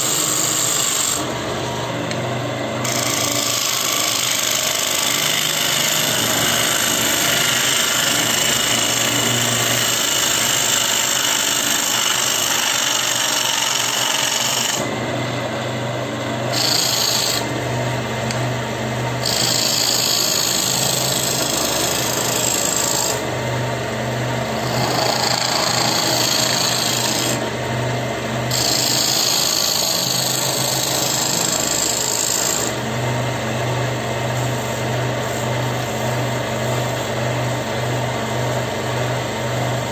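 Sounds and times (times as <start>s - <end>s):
gouge cutting wood: 0.0s - 15.2s, 16.4s - 17.6s, 19.1s - 23.3s, 24.5s - 27.6s, 28.5s - 32.9s
lathe motor hum: 0.0s - 39.9s.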